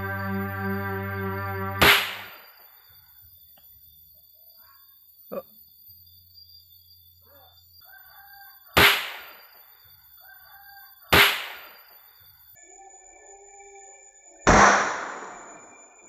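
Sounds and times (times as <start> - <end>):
firecracker bangs: 1.8 - 2.3
rooster crowing faintly: 7.3 - 8.8.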